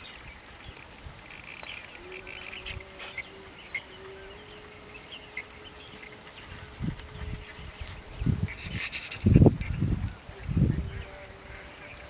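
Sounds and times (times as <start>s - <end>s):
ducks calling: 0.7s - 12.0s.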